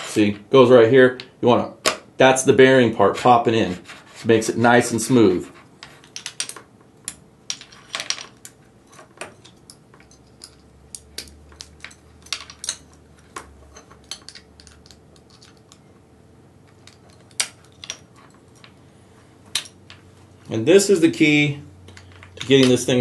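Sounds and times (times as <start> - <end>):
plastic and metal parts clicking: 8.0 - 15.8.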